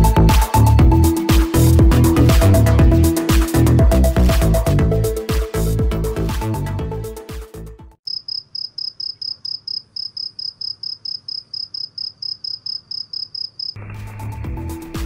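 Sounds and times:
music: 0.0s - 8.0s, 13.8s - 15.0s
cricket chirping: 8.0s - 13.8s.

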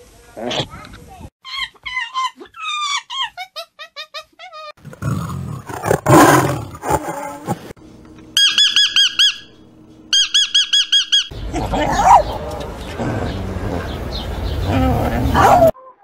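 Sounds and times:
monkey squeaking: 1.4s - 4.7s
tiger roaring: 4.8s - 7.4s
bird calls: 8.4s - 15.7s.

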